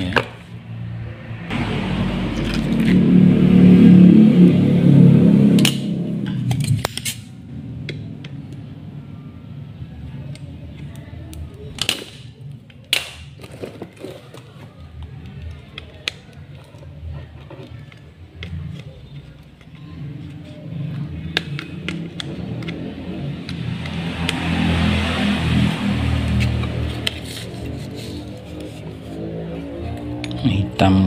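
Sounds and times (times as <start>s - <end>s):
faint background music: 6.6s - 31.0s.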